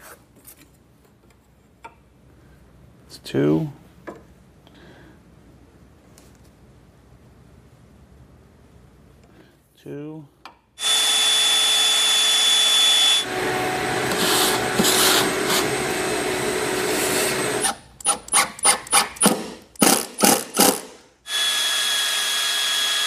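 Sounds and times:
power drill drilling into wood: 10.8s - 13.4s, 18.9s - 23.0s.

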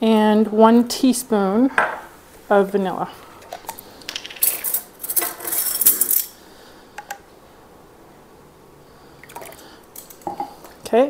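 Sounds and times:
metal spoons jangling: 4.4s - 6.4s.

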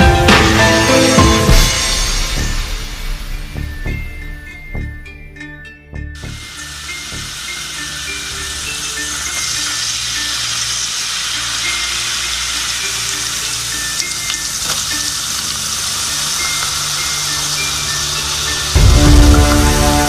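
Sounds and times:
soft background music: 0.0s - 20.0s
garlic sizzling in a wok: 6.2s - 20.0s.

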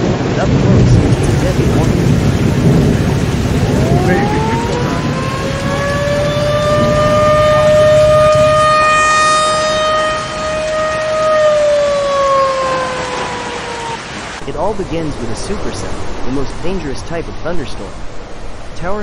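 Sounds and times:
tornado siren wailing: 0.0s - 14.4s
rain and storm noise: 0.0s - 19.0s.

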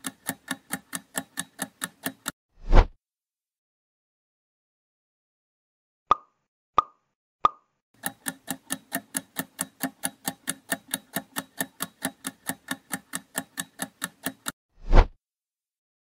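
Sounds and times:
rapid clock ticking: 0.0s - 2.4s, 8.0s - 14.6s.

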